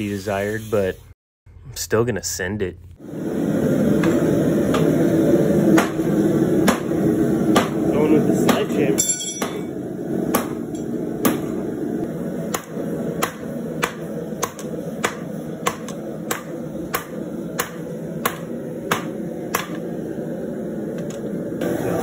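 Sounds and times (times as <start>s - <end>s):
low rushing background: 3.0s - 21.8s
hammer striking steel on anvil: 7.5s - 7.8s, 8.4s - 9.7s, 10.3s - 11.5s, 12.5s - 19.8s.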